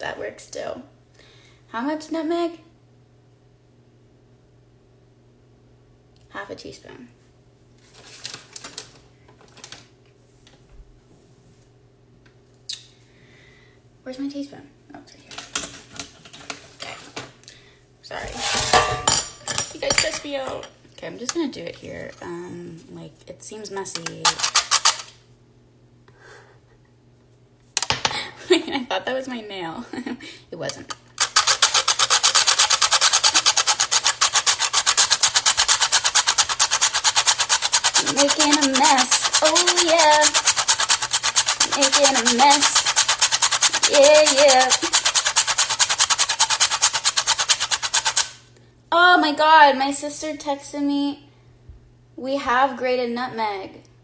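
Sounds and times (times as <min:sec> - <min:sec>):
nutmeg scraping on metal grater: 0:24.0 - 0:25.0, 0:31.2 - 0:48.4.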